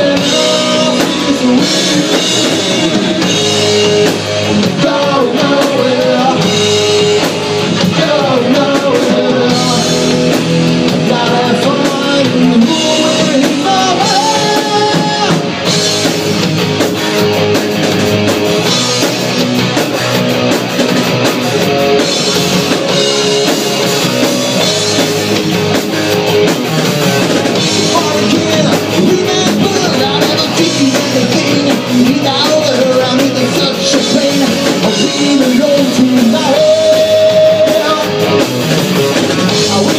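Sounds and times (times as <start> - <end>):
man singing: 0.0 - 15.6, 27.8 - 38.4, 39.2 - 39.9
distorted electric guitar: 0.0 - 39.9
drum kit: 0.0 - 39.9
electric bass: 0.0 - 39.9.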